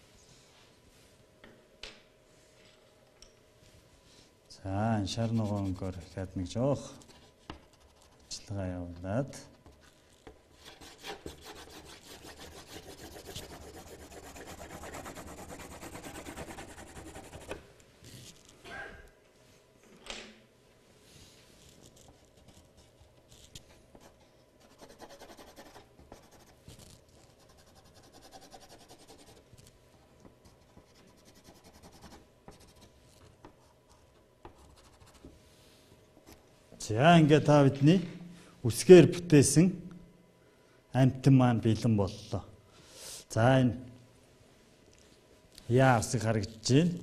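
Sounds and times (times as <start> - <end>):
pencil scribbling on paper: 5.2 - 6.0, 10.6 - 17.6, 24.0 - 26.6, 27.3 - 29.4, 30.5 - 32.9.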